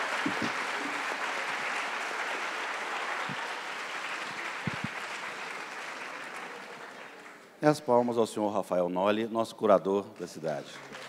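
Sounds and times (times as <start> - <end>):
audience applauding: 0.0 - 7.6, 10.2 - 11.0.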